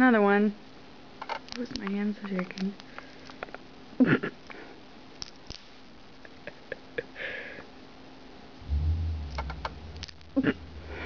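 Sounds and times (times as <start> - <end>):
low steady hum: 8.2 - 11.0.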